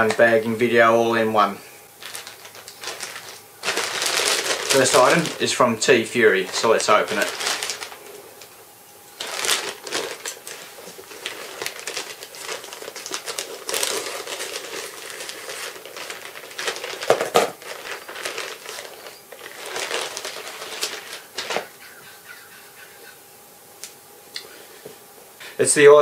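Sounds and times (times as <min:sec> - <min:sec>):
plastic bag crinkling: 0:01.9 - 0:21.8.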